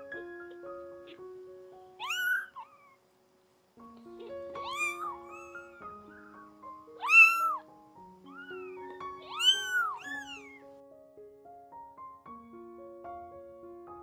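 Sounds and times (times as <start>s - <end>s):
soft piano music: 0.0s - 14.0s
kitten mewing: 2.0s - 3.0s, 4.3s - 5.7s, 7.0s - 7.7s, 8.3s - 10.6s.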